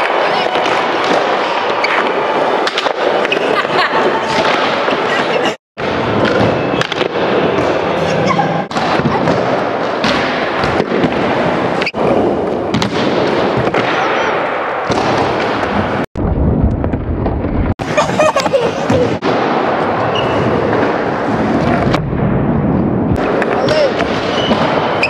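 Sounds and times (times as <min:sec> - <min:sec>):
skateboard wheels rolling on concrete: 0:16.6 - 0:22.1.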